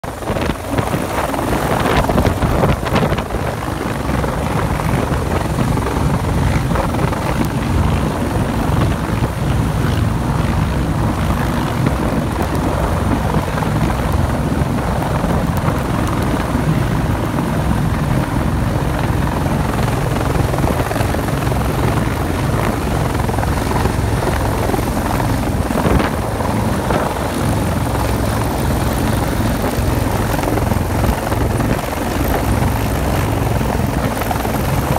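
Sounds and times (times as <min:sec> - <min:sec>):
helicopter rotor and turbine: 0:00.0 - 0:34.9.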